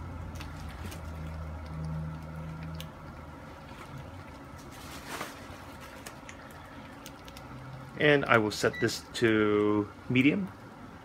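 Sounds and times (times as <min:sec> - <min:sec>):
electric cooktop humming: 0:00.0 - 0:11.0.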